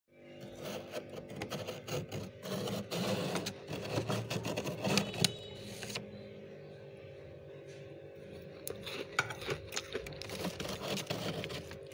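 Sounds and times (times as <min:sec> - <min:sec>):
metal spoon scraping frost: 0:00.4 - 0:06.0, 0:08.7 - 0:11.9.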